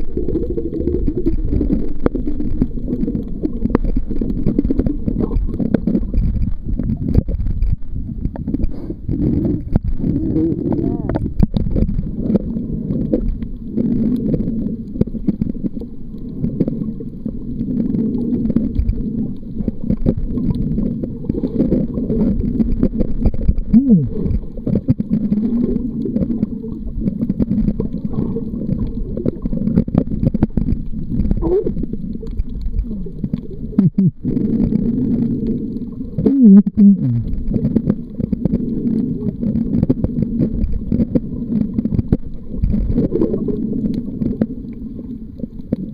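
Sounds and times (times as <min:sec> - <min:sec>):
underwater rumbling and gurgling: 0:00.0 - 0:45.9
small clicks: 0:00.2 - 0:10.1, 0:11.0 - 0:36.2.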